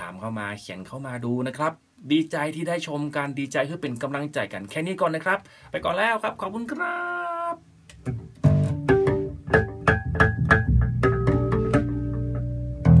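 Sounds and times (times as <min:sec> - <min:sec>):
electric bass plucked notes: 0:07.9 - 0:13.0.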